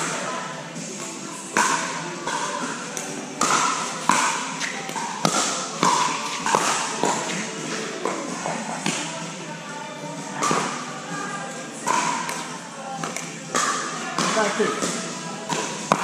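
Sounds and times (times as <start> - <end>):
paddles hitting plastic ball: 1.6 - 7.4, 11.8 - 16.0.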